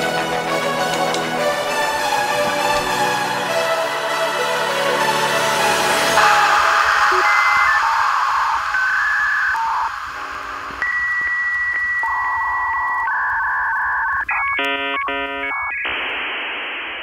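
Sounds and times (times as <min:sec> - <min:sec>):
electronic music: 0:00.0 - 0:17.0
hiss of static: 0:05.8 - 0:14.1
modem handshake beeps and warbling: 0:06.8 - 0:16.0.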